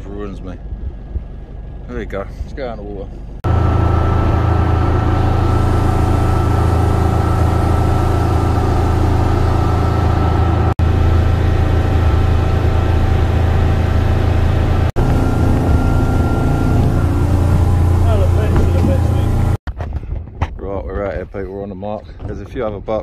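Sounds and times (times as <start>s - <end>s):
motorboat engine drone: 3.0s - 19.6s
thin steady whine: 3.5s - 19.6s.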